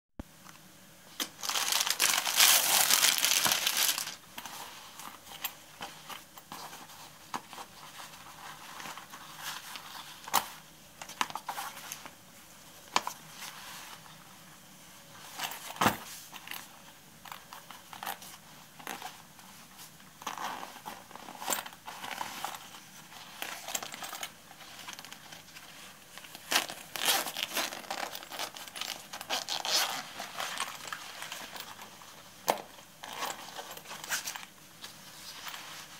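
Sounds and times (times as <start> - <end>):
plastic packaging crinkling: 1.2 - 4.2
fabric bag rustling: 1.2 - 5.4.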